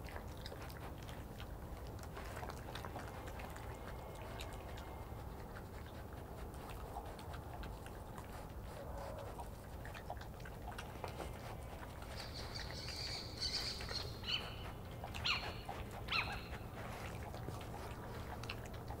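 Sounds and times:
badgers eating clicks: 0:00.0 - 0:19.0
owl calls: 0:15.2 - 0:16.5.

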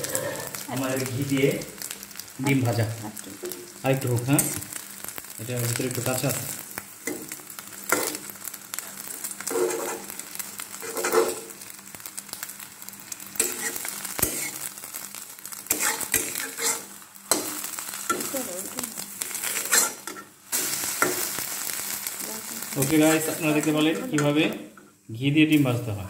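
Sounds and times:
egg sizzling in a pan: 0:00.0 - 0:26.0
metal spatula scraping a pan: 0:09.4 - 0:10.2, 0:10.8 - 0:11.6, 0:13.4 - 0:14.7, 0:15.7 - 0:18.3, 0:19.3 - 0:21.3.

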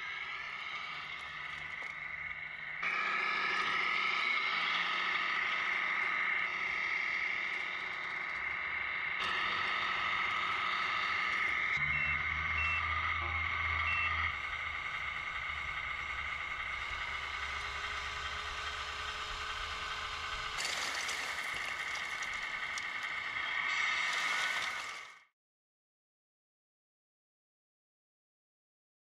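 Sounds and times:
simulated diesel engine: 0:00.0 - 0:25.3
reversing beeper: 0:09.2 - 0:19.3
rocks sliding onto a pile: 0:20.6 - 0:23.1, 0:24.0 - 0:25.1.

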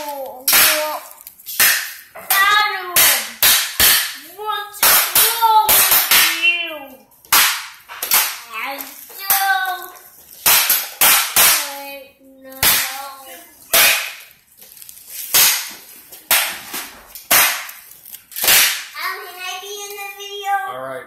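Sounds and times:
sharp cracks: 0:00.0 - 0:06.6, 0:07.3 - 0:20.1
child making sound-effect noises: 0:19.0 - 0:20.8.

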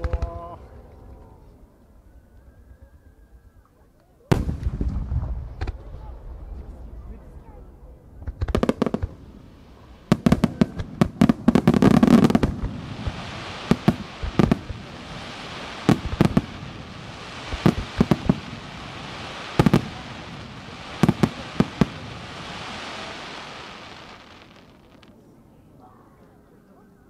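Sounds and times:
firework booms: 0:04.3 - 0:25.2
steady hiss: 0:08.4 - 0:25.2.

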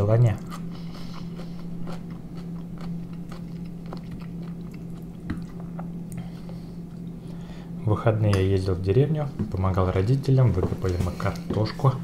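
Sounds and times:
steady low hum: 0:00.0 - 0:12.0
person chewing: 0:00.4 - 0:07.2.

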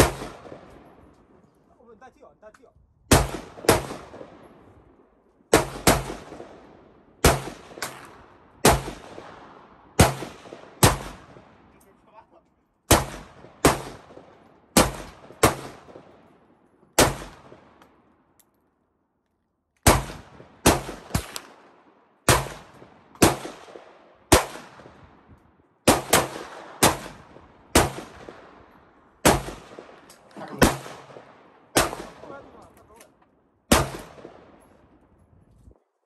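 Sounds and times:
gunshots with short echo: 0:29.2 - 0:32.7, 0:33.7 - 0:34.6.

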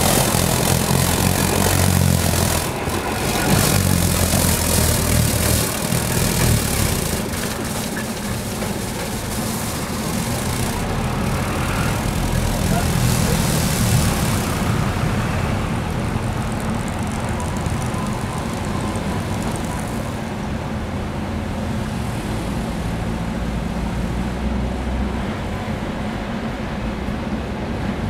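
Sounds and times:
brooms sweeping snow hiss: 0:00.0 - 0:20.0
tram rumbling on track: 0:00.0 - 0:28.0.

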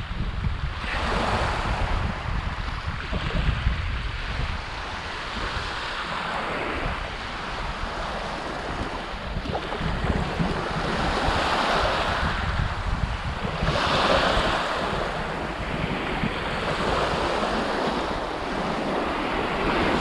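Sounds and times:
wind buffeting microphone: 0:00.0 - 0:20.0
waves washing up pebble beach: 0:04.2 - 0:20.0.

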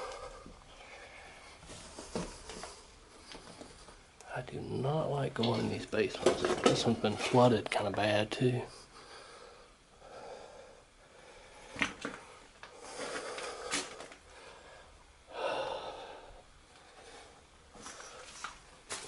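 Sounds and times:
person exhaling heavily: 0:12.8 - 0:16.4.

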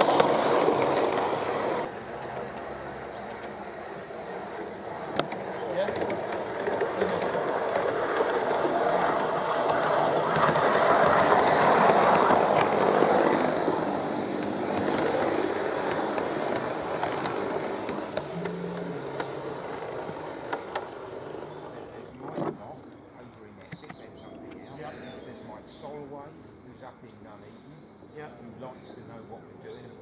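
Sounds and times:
model train running on rails: 0:00.0 - 0:22.4.

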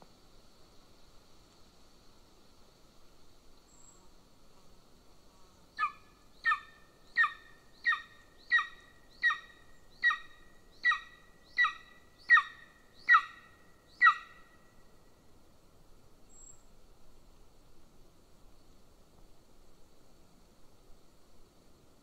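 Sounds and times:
eagle yelping calls: 0:05.8 - 0:14.4.

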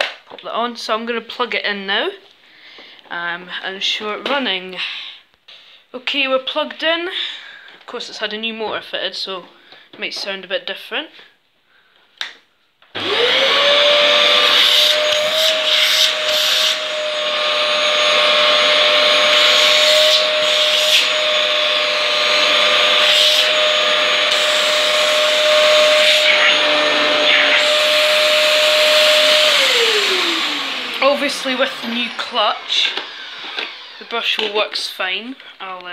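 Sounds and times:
vacuum cleaner motor whine: 0:13.0 - 0:34.9.

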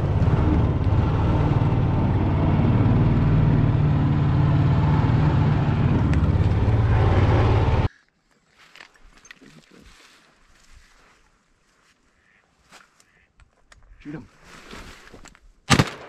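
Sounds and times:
outboard motor running: 0:00.0 - 0:07.9.

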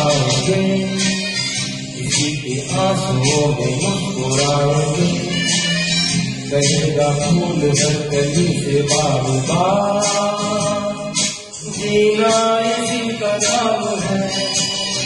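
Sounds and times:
karaoke backing music: 0:00.0 - 0:15.0
man singing into a microphone: 0:00.0 - 0:15.0.

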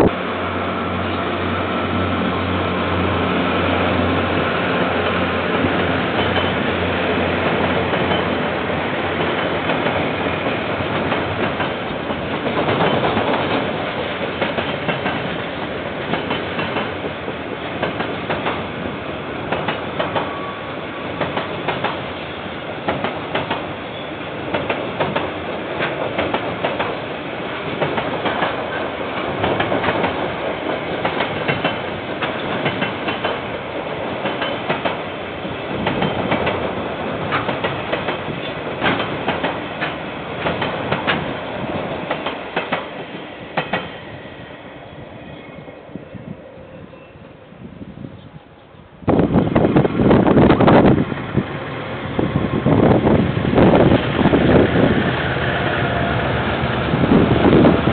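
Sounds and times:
train wheels clicking over rail joints: 0:03.2 - 0:44.1.

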